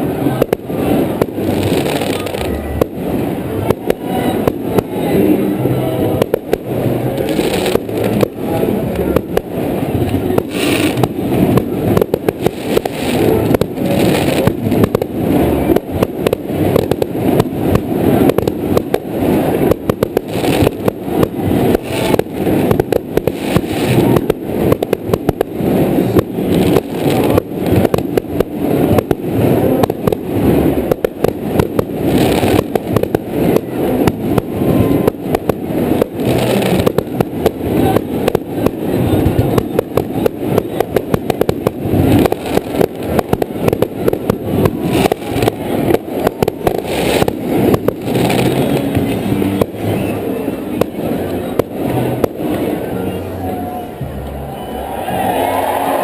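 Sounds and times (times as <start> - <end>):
fireworks launching and bursting: 0.0 - 56.0.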